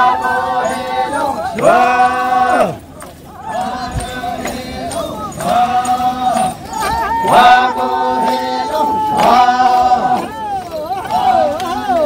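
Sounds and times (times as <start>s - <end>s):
group chanting folk song: 0.0s - 12.0s.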